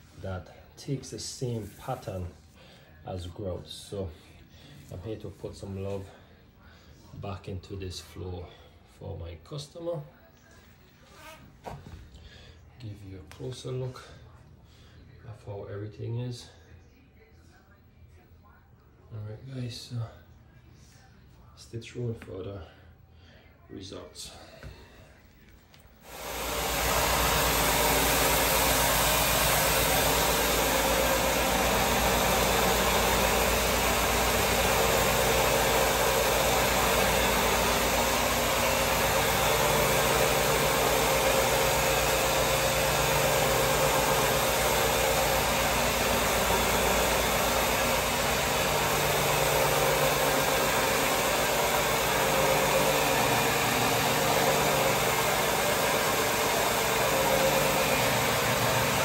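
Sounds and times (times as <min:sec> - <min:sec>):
brushes scrubbing wet floor: 0:01.4 - 0:02.3
floor machine motor humming: 0:24.3 - 0:59.0.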